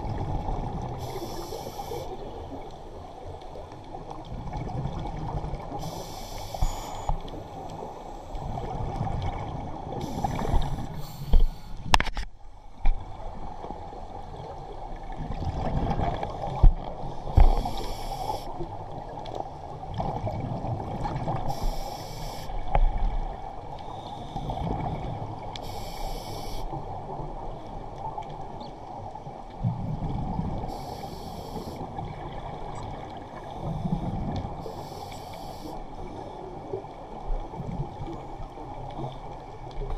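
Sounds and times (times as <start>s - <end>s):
muffled underwater rumble: 0.0s - 39.9s
diver breathing through regulator: 1.0s - 2.3s, 5.8s - 7.2s, 10.0s - 11.8s, 17.3s - 18.5s, 21.5s - 22.5s, 25.6s - 26.7s, 30.7s - 31.8s, 33.6s - 35.8s.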